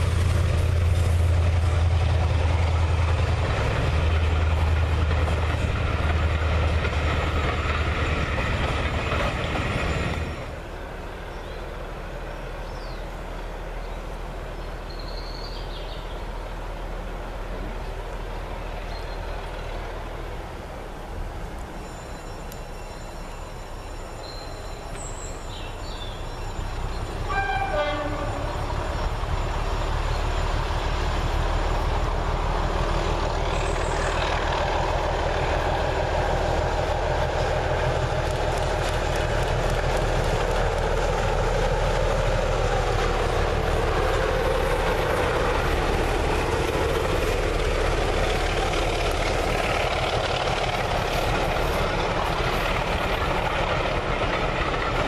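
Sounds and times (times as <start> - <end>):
diesel locomotive engine running: 0.0 - 55.0
locomotive horn blast: 27.2 - 29.1.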